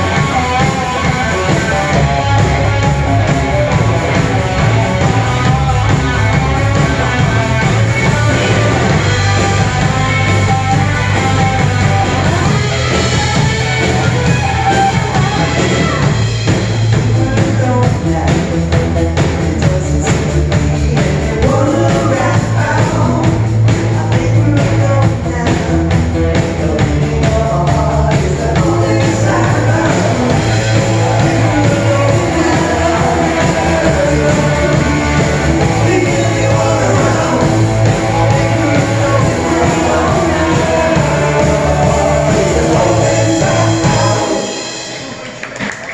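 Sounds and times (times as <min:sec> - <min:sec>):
drum kit: 0:00.0 - 0:45.9
electric guitars: 0:00.0 - 0:45.9
woman singing lead: 0:16.9 - 0:45.2.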